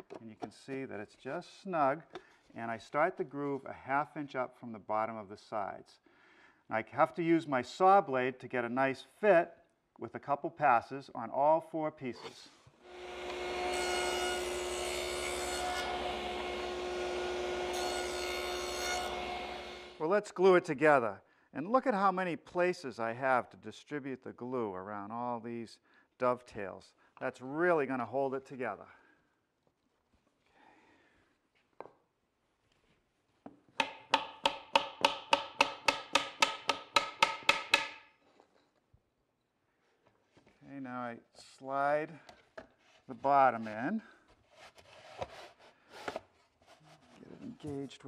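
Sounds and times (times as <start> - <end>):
table saw cutting plywood: 12.9 - 20.0
mallet tapping wood: 33.8 - 38.0.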